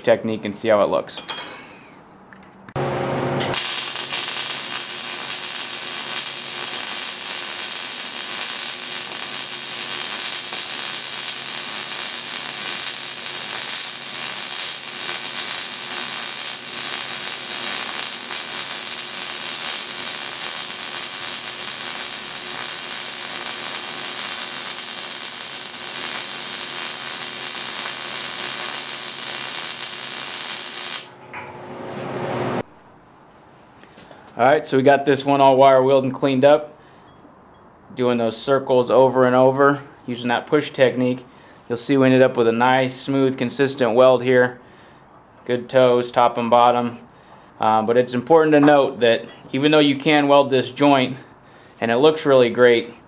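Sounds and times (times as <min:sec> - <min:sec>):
welding arc crackling: 0:03.4 - 0:31.2.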